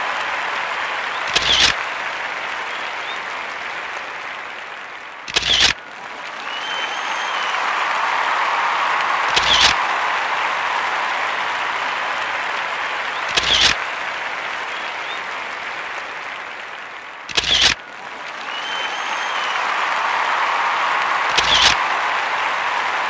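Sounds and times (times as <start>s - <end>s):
crowd applauding: 0.0s - 23.0s
short sharp clicks: 1.3s - 1.8s, 5.3s - 5.8s, 9.3s - 9.8s, 13.2s - 13.8s, 17.3s - 17.8s, 21.3s - 21.8s.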